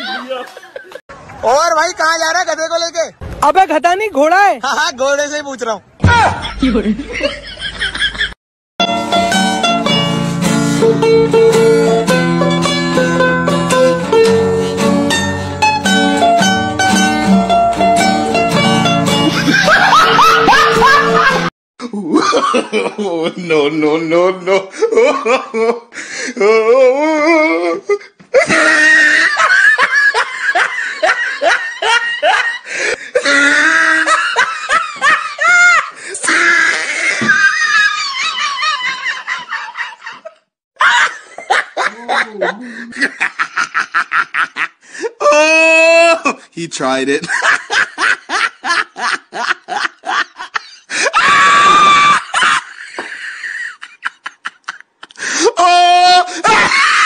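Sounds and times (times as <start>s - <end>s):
hearty human laughter: 19.3s - 23.6s, 24.2s - 26.6s, 27.2s - 44.8s, 47.2s - 57.0s
high-pitched scream: 51.2s - 52.3s.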